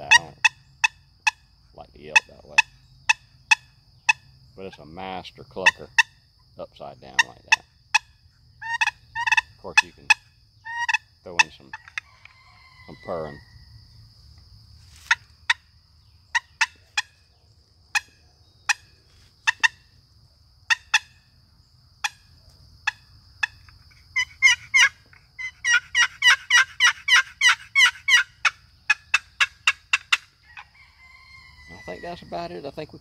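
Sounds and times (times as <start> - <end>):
turkey call clucks and purrs: 0.0 - 4.8, 7.1 - 13.6, 16.3 - 17.3, 20.7 - 21.2, 22.0 - 32.4.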